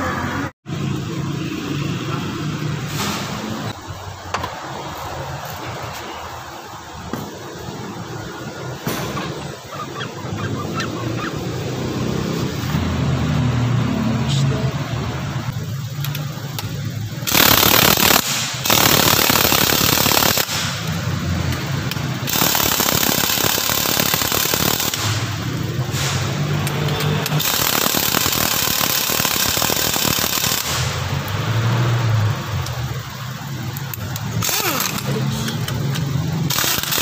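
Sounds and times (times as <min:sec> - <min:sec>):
pneumatic impact wrench hammering: 0:15.8 - 0:31.4, 0:33.6 - 0:37.0.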